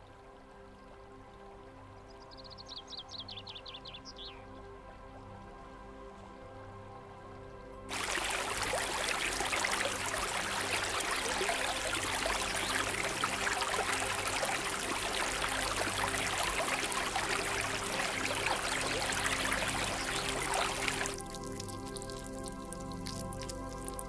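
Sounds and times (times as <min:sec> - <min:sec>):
stream flowing over rocks: 0:07.9 - 0:24.0.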